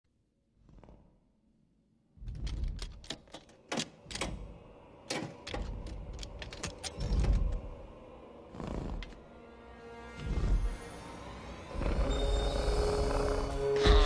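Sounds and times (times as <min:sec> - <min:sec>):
door opening: 0:02.2 - 0:07.8
door latch clicking and creaking: 0:02.4 - 0:07.6.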